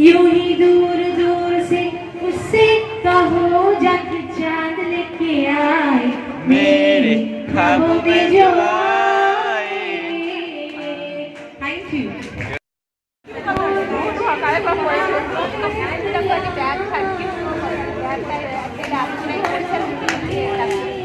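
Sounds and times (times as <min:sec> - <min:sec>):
woman singing: 0:00.0 - 0:06.2.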